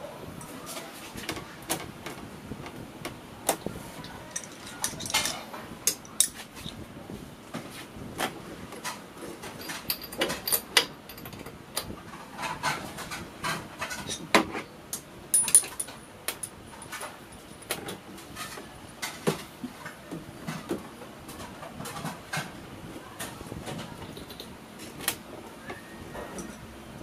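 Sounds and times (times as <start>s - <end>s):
metal tools clinking on engine: 4.2s - 6.4s, 9.4s - 11.5s, 15.3s - 17.7s.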